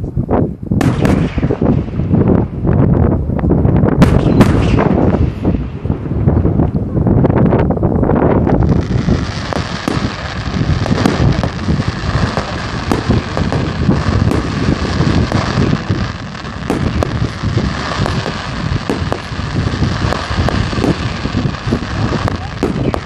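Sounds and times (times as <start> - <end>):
wind rumble on microphone: 0.0 - 23.0
fireworks popping and crackling: 0.8 - 3.1, 3.8 - 23.0.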